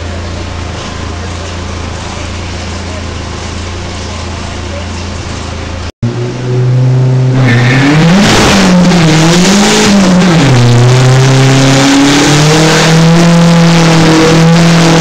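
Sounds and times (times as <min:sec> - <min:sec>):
car engine revving on a dyno: 0:06.0 - 0:15.0.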